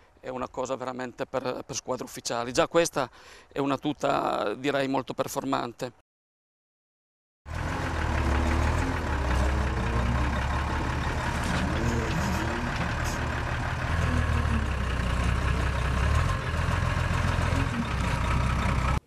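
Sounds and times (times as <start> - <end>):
diesel engine running under load: 7.5 - 19.0.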